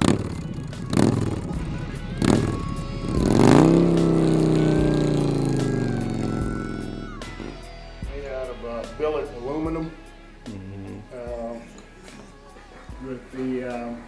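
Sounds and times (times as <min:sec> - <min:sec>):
motorcycle engine revving: 0:00.0 - 0:08.1.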